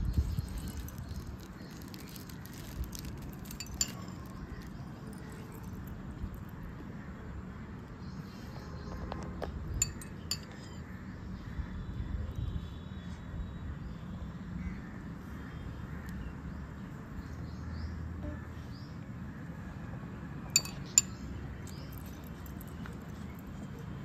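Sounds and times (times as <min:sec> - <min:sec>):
low background noise: 0:00.0 - 0:24.0
metal spoon clinking glass bowl: 0:03.0 - 0:04.7, 0:09.8 - 0:10.8, 0:20.5 - 0:21.2.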